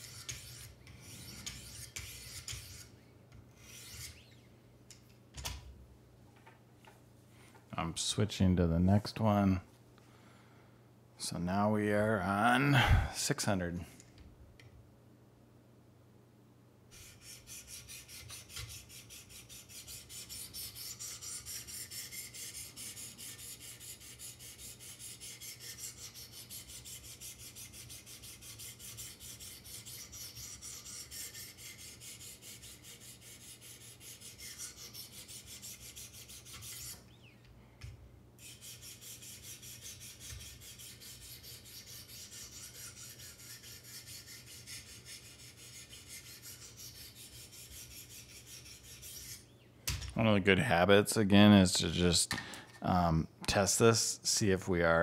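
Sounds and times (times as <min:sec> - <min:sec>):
sharpening stone scraping knife edge: 0:00.0 - 0:02.9, 0:17.0 - 0:37.0, 0:38.4 - 0:49.4.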